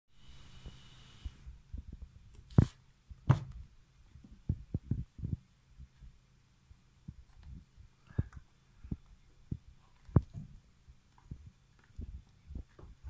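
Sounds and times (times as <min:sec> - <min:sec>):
low steady hum: 0:00.2 - 0:13.0
handling thumps and knocks: 0:01.8 - 0:05.4, 0:07.1 - 0:10.6, 0:11.2 - 0:13.0.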